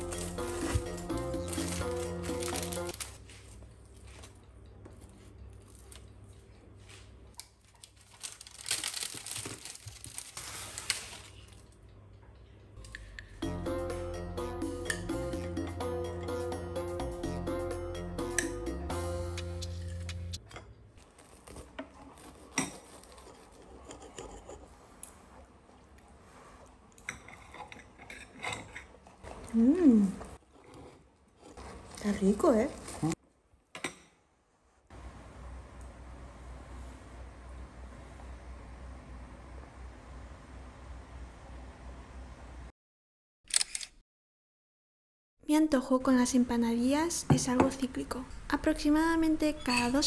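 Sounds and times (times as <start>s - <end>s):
baking paper crinkling: 0.0s - 4.4s, 6.8s - 11.8s, 21.0s - 23.9s
soft chewing: 3.2s - 8.0s, 21.0s - 32.0s
puff pastry crackling: 7.0s - 11.8s
fork scraping on ceramic plate: 22.0s - 24.8s
person humming mmm: 29.5s - 30.4s.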